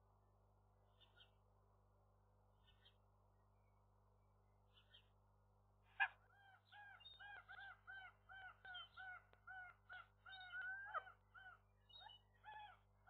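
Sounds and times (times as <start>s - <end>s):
gull calling: 5.9s - 12.8s.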